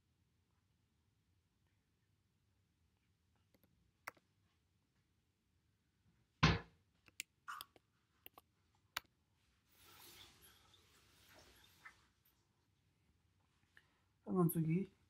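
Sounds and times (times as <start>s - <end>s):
dull thump: 6.4s - 6.7s.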